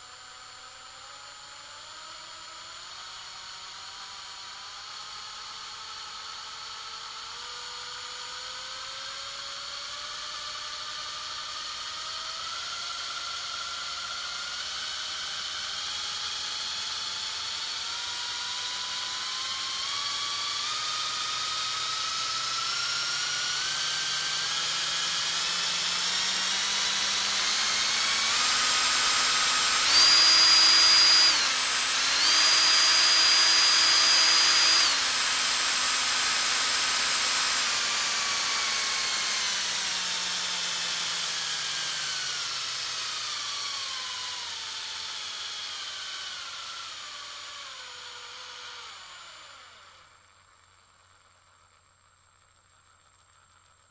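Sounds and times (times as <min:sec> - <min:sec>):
power drill whining: 0:01.7 - 0:51.8.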